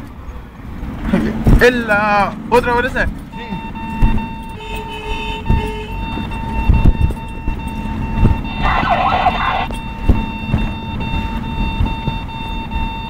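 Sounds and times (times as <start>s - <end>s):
vehicle road and engine rumble: 0.0s - 13.0s
vehicle jolts: 5.2s - 13.0s
steady high tone: 8.6s - 9.8s.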